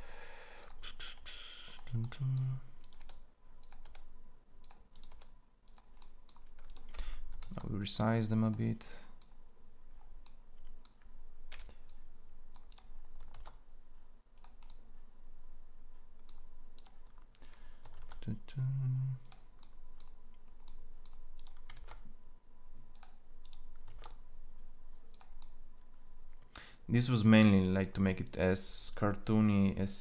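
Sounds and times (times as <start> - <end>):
keyboard keystrokes: 2.8 - 7.7, 12.5 - 13.6, 19.2 - 22.1, 22.9 - 24.2.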